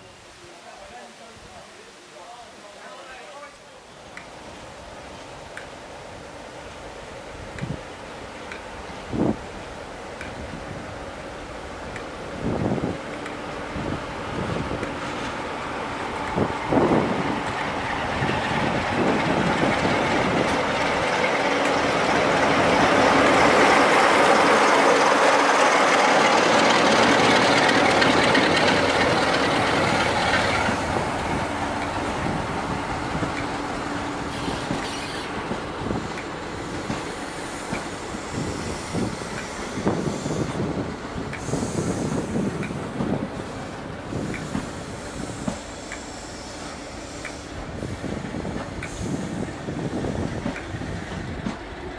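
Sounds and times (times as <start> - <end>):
diesel locomotive engine passing: 4.1 - 51.9
wheels clicking over rail joints: 11.2 - 51.9.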